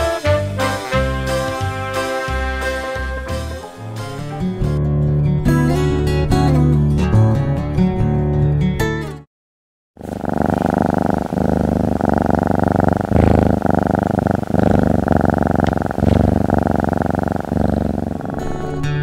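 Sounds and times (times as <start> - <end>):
cat purring: 10.0 - 19.0.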